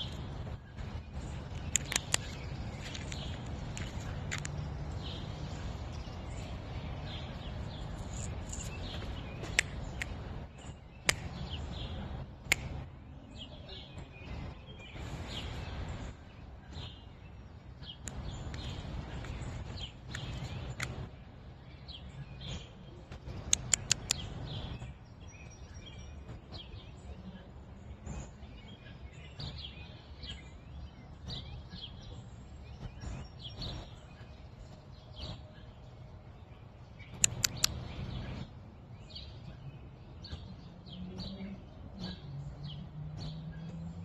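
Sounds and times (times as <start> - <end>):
birds chirping: 0.0 - 44.0
sharp clicks: 1.5 - 4.6, 8.2 - 10.3, 11.0 - 11.4, 23.3 - 24.3, 37.1 - 37.9.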